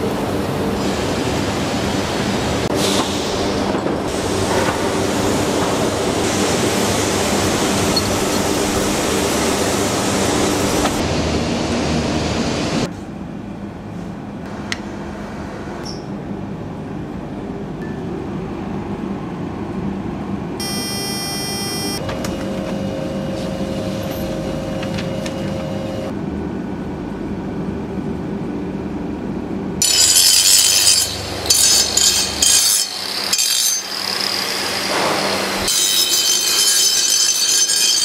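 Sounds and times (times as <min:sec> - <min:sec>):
loud factory machinery: 0:00.0 - 0:17.6, 0:18.3 - 0:38.0
machine hum: 0:18.2 - 0:28.1.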